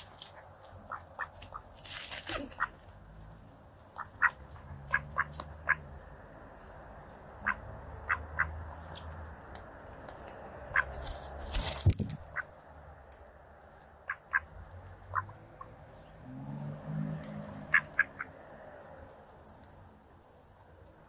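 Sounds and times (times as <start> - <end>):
ducks pecking clicks: 0.0 - 2.9, 3.9 - 15.7, 17.2 - 20.0
ducks quacking: 2.3 - 2.8, 3.9 - 6.0, 7.4 - 9.1, 10.6 - 11.0, 12.2 - 12.6, 14.0 - 15.8, 17.6 - 18.4.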